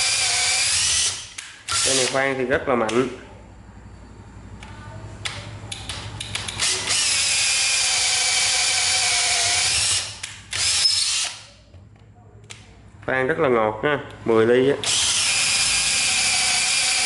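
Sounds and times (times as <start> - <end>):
drill clicks: 0.0 - 2.2, 5.2 - 11.5, 14.8 - 17.0
drill motor running under load: 0.0 - 2.2, 6.6 - 11.5, 14.8 - 17.0.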